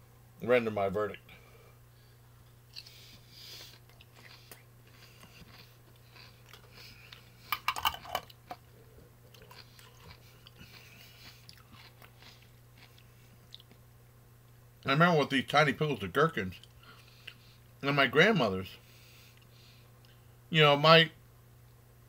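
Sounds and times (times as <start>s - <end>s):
gherkin crunching: 2.7s - 8.6s, 9.3s - 13.8s
wet chewing: 2.7s - 8.6s, 9.2s - 13.8s.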